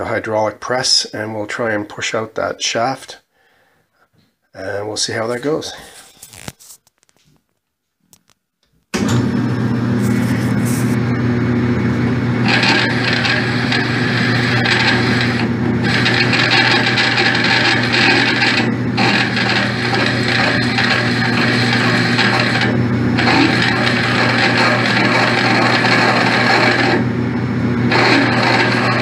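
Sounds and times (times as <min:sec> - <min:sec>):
lathe humming: 0:10.2 - 0:29.0
drill scraping into metal: 0:12.4 - 0:27.2, 0:27.9 - 0:29.0.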